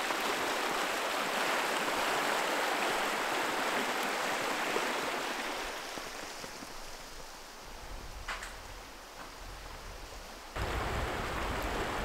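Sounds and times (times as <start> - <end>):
creek running over rocks: 0.0 - 7.9, 10.5 - 12.0.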